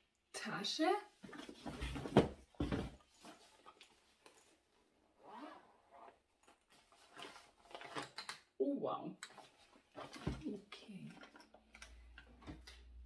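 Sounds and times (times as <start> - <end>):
zipper being pulled open: 5.2 - 6.2.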